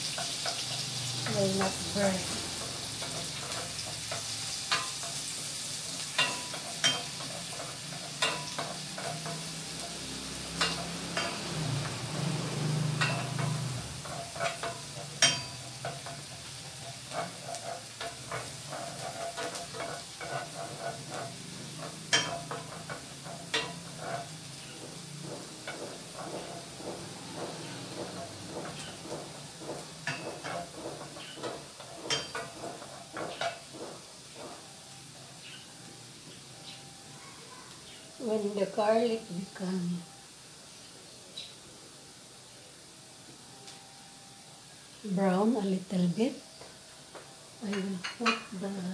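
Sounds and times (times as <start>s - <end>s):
garlic sizzling in butter: 0.0s - 48.9s
wooden spatula knocking pan: 12.6s - 34.6s.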